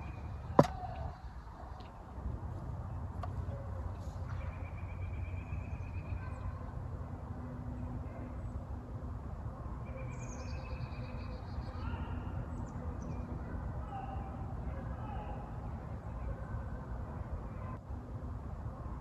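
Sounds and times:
songbirds calling: 9.8 - 14.4.

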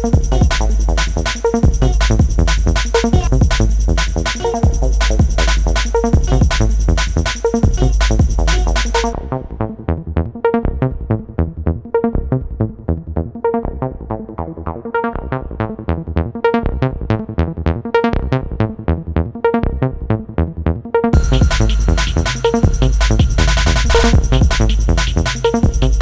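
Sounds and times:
bass line: 0.0 - 26.0
plucked synth notes: 21.2 - 26.0.

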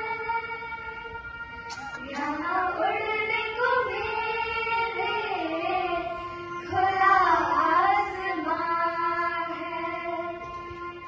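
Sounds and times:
children singing into a microphone: 0.0 - 11.0.

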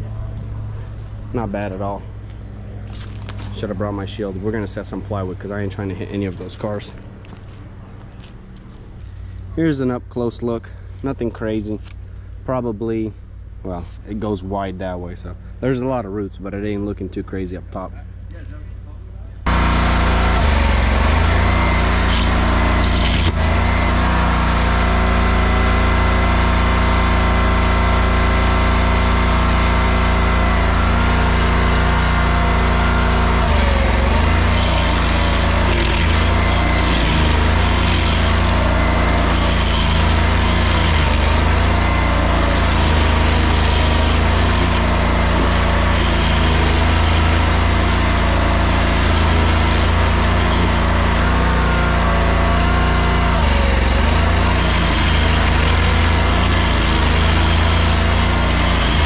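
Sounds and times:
stump grinder engine running: 19.4 - 59.0.

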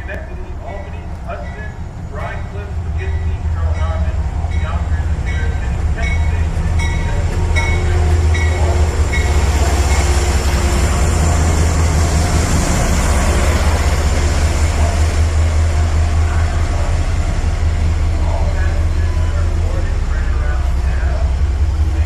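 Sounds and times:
train bell ringing: 0.0 - 13.8
locomotive engine rumble: 0.0 - 22.0
train cars rolling past: 0.0 - 22.0.

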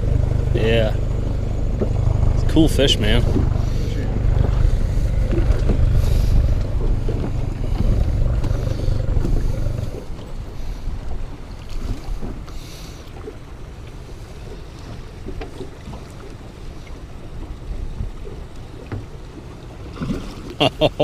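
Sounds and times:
wind buffeting microphone: 0.0 - 12.6.

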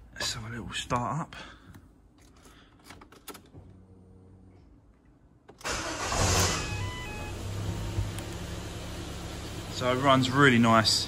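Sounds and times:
car engine cranking and starting: 5.5 - 11.0
car engine idling: 5.6 - 11.0.

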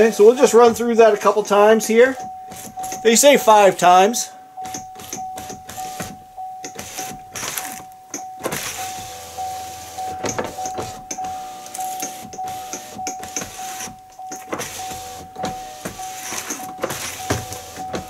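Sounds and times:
door-open warning chime: 0.0 - 18.0
power window motor: 4.6 - 18.0
window glass knocking: 10.1 - 11.4, 12.0 - 18.0.

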